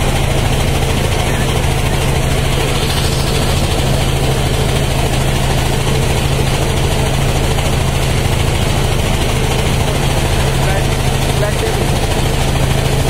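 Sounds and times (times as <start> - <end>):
motorboat engine droning: 0.0 - 13.0.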